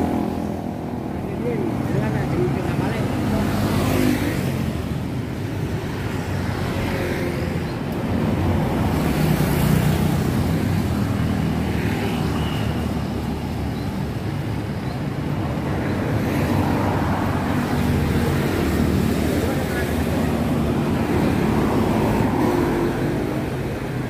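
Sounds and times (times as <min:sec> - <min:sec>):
steady traffic rumble: 0:00.0 - 0:24.0
vehicles passing: 0:00.0 - 0:24.0.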